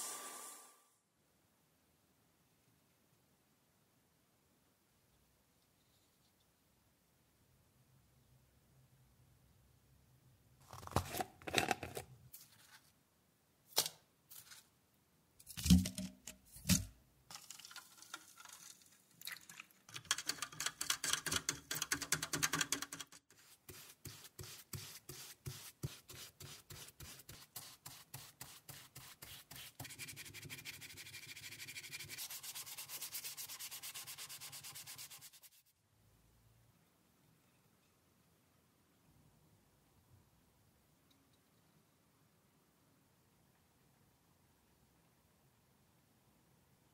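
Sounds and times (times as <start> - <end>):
brush scrubbing wood: 23.4 - 35.6.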